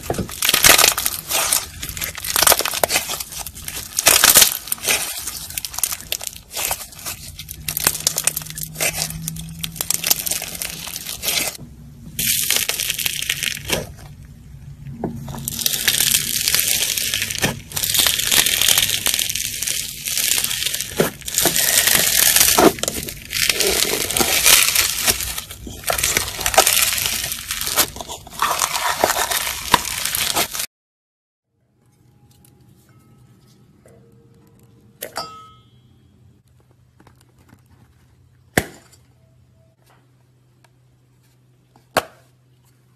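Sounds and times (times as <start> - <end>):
slime crackling and popping: 0.0 - 14.3, 15.2 - 30.7.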